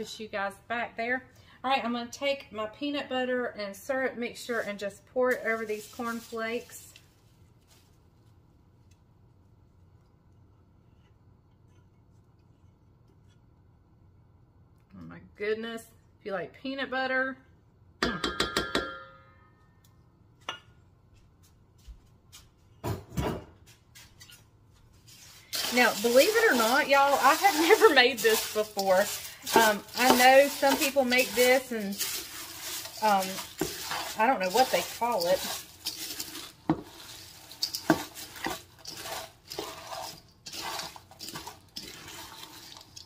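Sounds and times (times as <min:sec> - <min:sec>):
spoon stirring cereal scraping: 0:04.4 - 0:08.3, 0:25.0 - 0:43.0.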